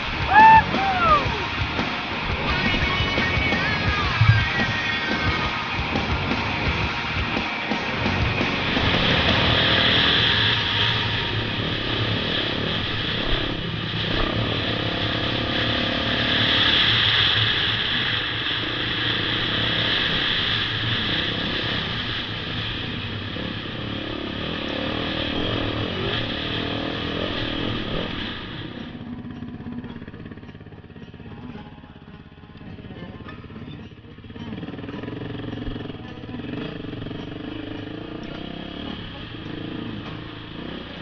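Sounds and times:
dirt bike engine under throttle: 0.0s - 41.0s.

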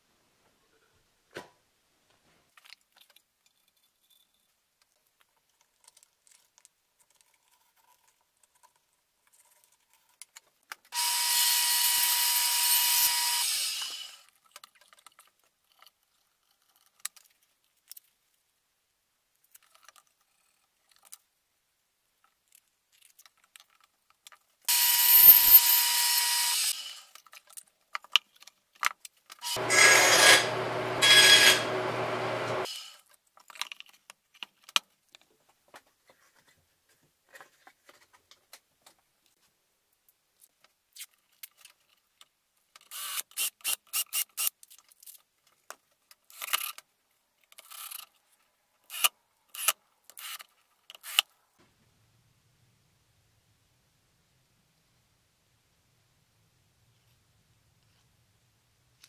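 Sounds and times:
power tool motor running: 11.0s - 14.2s, 24.7s - 27.0s, 29.4s - 32.9s.

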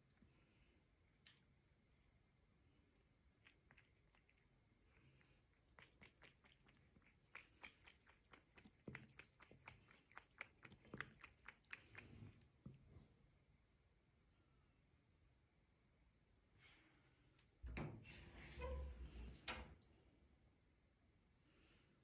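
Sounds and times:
cat lapping water: 3.0s - 12.9s
thin stream from tap: 5.6s - 12.8s.

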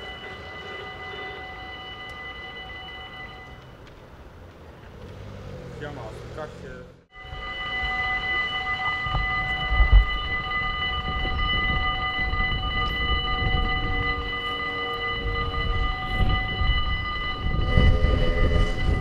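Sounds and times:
level-crossing warning bells ringing: 0.0s - 4.5s, 5.8s - 19.0s
low rumble: 7.2s - 19.0s.

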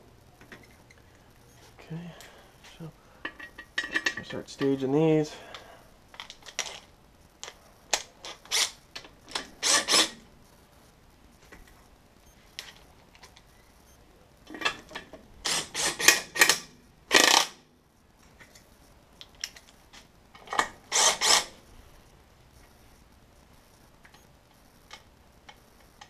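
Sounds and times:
ratchet wrench ratcheting: 15.4s - 17.6s, 20.9s - 21.5s.

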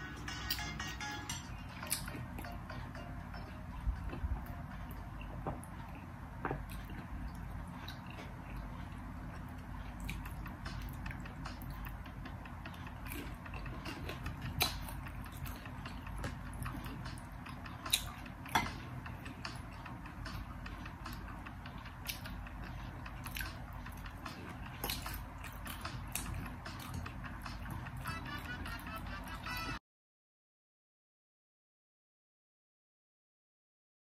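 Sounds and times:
steady low hum: 0.0s - 29.8s
chewing and swallowing: 4.1s - 28.0s.

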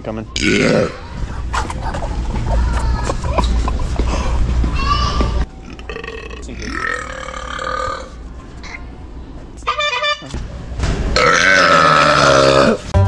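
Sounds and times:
man burping: 0.4s - 1.0s, 5.7s - 8.1s, 11.2s - 12.9s.

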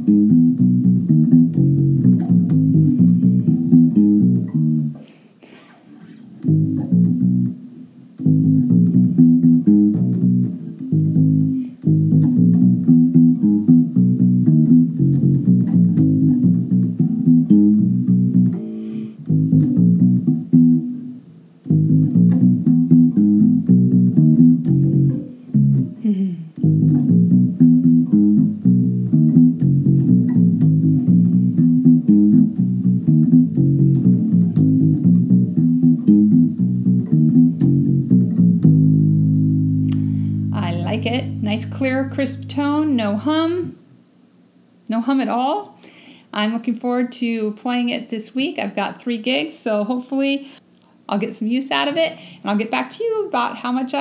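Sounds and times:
electric bass plucked notes: 0.0s - 5.0s, 6.4s - 43.8s.

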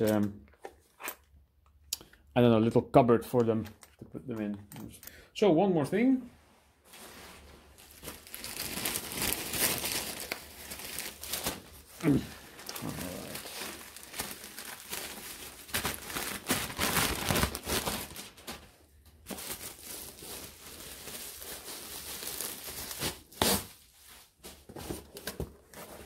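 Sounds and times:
bubble wrap and plastic crinkling: 6.8s - 26.0s.

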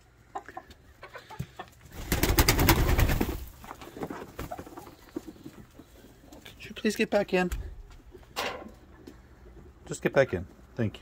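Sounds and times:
hens clucking softly: 0.0s - 2.0s.

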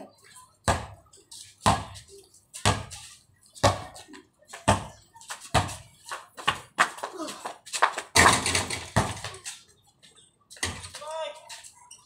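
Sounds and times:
basketball bouncing on concrete: 0.6s - 1.0s, 1.6s - 3.0s, 3.6s - 7.1s, 7.9s - 9.4s, 10.6s - 11.0s.

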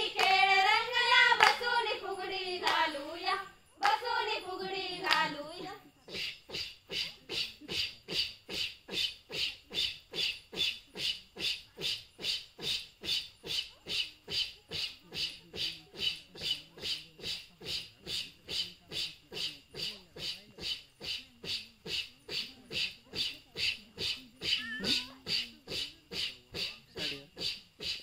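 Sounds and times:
rhythmic breathy chorus: 0.0s - 28.0s.

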